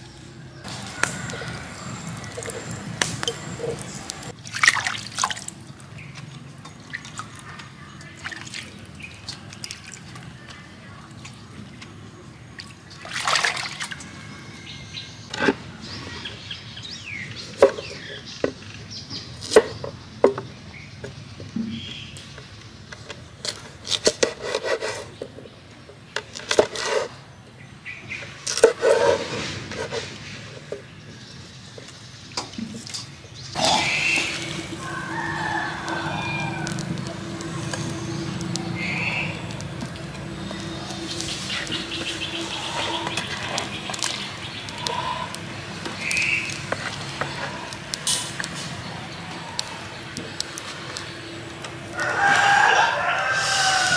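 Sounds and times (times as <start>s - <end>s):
steady low hum: 0.6s - 4.4s, 33.6s - 52.0s
leafy greens rustling: 0.7s - 11.5s, 33.6s - 53.9s
animal calls: 33.6s - 47.9s.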